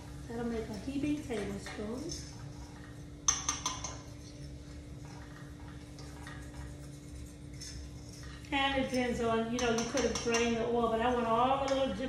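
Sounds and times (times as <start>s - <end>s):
steady hum: 0.0s - 12.0s
metal spoon tapping skillet: 3.2s - 4.1s, 9.5s - 10.6s.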